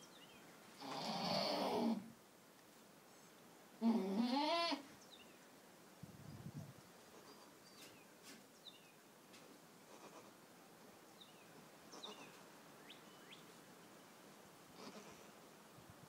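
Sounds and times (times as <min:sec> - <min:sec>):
faint bird chirps: 0:11.2 - 0:13.5.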